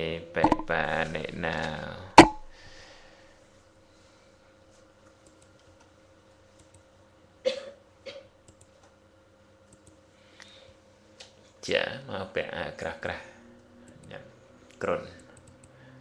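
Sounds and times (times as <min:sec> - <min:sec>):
faint steady hum: 0:00.0 - 0:16.0
man clearing his throat: 0:07.5 - 0:08.2.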